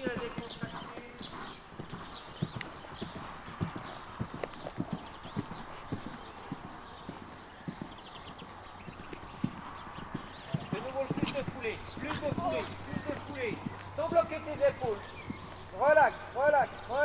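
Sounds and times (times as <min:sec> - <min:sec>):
hoofbeats on sand: 0:00.0 - 0:17.0.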